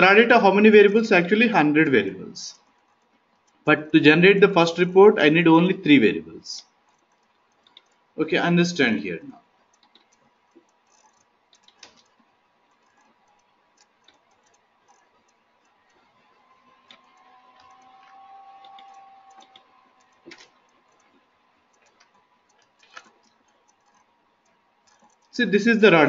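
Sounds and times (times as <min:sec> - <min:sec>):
faint steady hum: 0:00.0 - 0:26.0
mouse and keyboard clicks: 0:06.9 - 0:08.0, 0:09.7 - 0:25.3.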